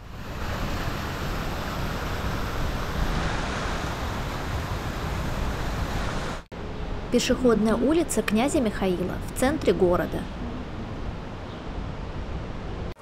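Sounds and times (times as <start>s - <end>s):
city street background noise: 6.5s - 13.0s.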